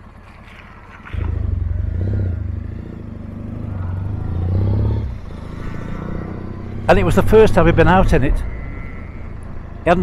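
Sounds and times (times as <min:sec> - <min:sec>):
motorcycle engine pulling away: 0:00.0 - 0:09.8.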